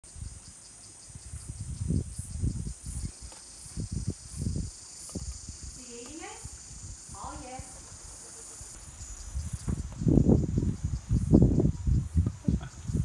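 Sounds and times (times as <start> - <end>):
insects shrilling: 0.1 - 13.0
muffled bumps on microphone: 9.4 - 13.0.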